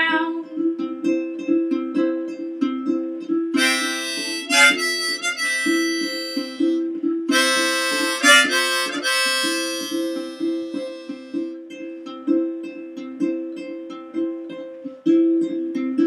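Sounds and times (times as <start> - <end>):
ukulele strumming: 0.0 - 16.0
harmonica phrases: 3.6 - 11.7.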